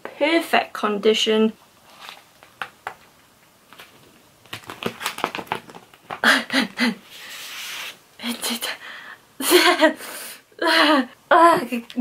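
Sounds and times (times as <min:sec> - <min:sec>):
paper rustling: 0:01.8 - 0:03.0, 0:03.7 - 0:06.2
person laughing breathily: 0:06.2 - 0:07.2, 0:09.4 - 0:11.1
paper sliding: 0:07.1 - 0:08.0.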